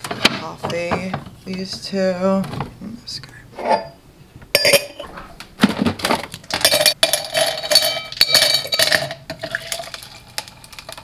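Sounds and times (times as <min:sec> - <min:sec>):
ice cubes clinking into glass: 0:06.5 - 0:11.0.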